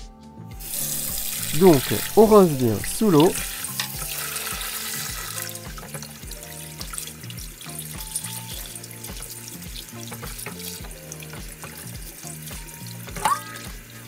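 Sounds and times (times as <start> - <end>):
background music: 0.0 - 14.0
meat rubbed and rinsed by hand: 0.6 - 14.0
tap water splashing into colander: 0.7 - 14.0.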